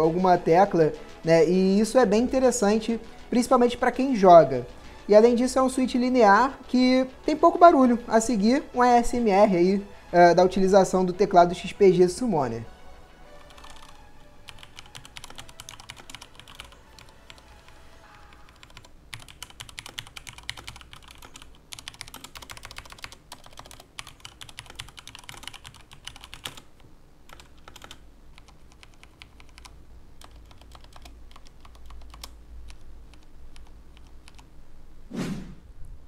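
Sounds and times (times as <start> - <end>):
mechanical keyboard typing: 13.4 - 17.4, 18.4 - 26.7, 27.3 - 34.5.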